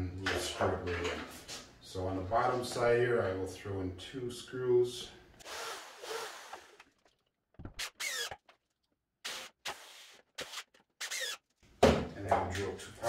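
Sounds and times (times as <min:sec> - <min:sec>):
cordless drill driving into wood: 0:07.8 - 0:08.3, 0:10.4 - 0:11.4.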